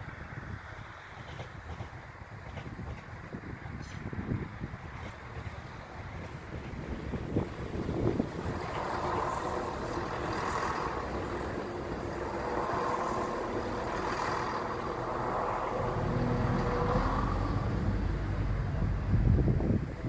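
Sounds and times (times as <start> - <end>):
train wheels rumbling on rails: 0.0 - 20.0
deep low rumble: 8.4 - 20.0.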